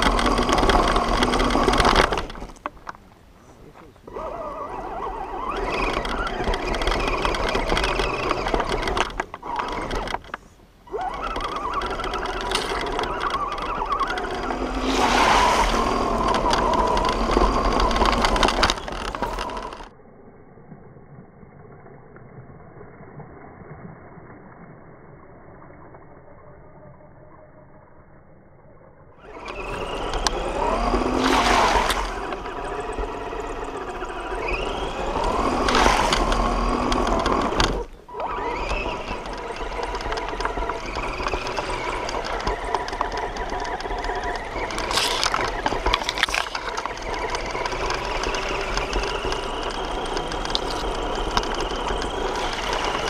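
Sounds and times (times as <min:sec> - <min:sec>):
toy car motor and gears whining: 0:00.0 - 0:02.8, 0:04.1 - 0:20.0, 0:29.1 - 0:53.0
tyres crunching on gravel: 0:29.2 - 0:53.0.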